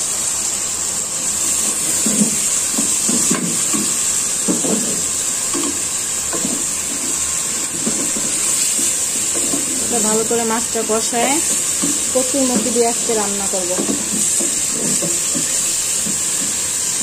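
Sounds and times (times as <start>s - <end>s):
fish sizzling in a pot: 0.0s - 17.0s
spatula scraping a pot: 11.4s - 17.0s.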